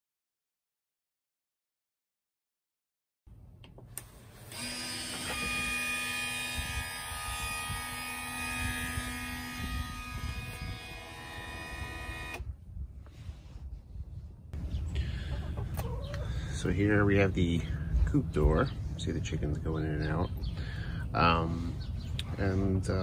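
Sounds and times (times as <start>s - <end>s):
electric motor whining: 4.2s - 12.5s.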